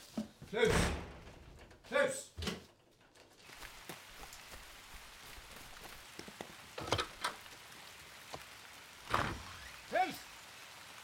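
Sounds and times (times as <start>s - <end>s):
rain pattering: 3.0s - 11.0s.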